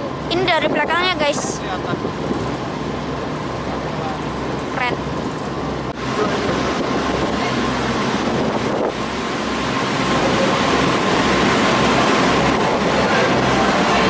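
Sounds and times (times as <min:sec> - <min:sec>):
wind on microphone: 0:00.0 - 0:02.8, 0:05.8 - 0:14.0
boat engine running: 0:00.0 - 0:14.0
water rushing along hull: 0:00.0 - 0:14.0.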